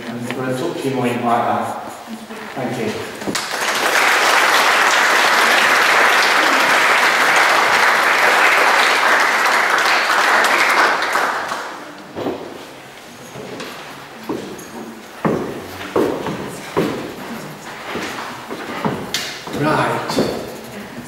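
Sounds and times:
audience applauding: 3.2 - 12.0.

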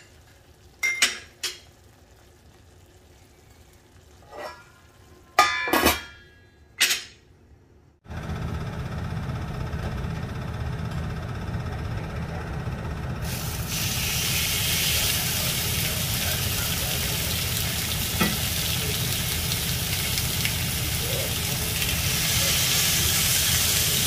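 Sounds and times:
fish sizzling in grill pan: 13.3 - 24.0.

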